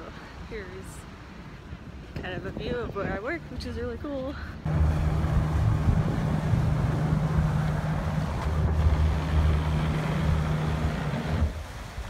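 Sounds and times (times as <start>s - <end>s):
yacht engines humming: 3.1s - 12.0s
water churning beside hull: 4.6s - 12.0s.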